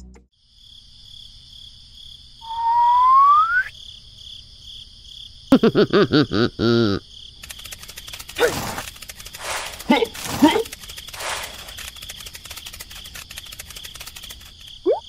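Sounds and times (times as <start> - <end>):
cricket chirping: 0.3 - 15.0
rising whistle: 2.4 - 3.7.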